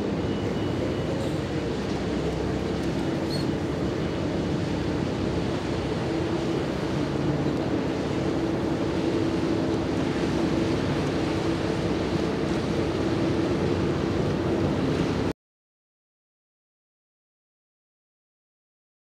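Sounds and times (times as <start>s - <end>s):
engine drone: 0.0s - 15.3s
water washing: 1.0s - 15.3s.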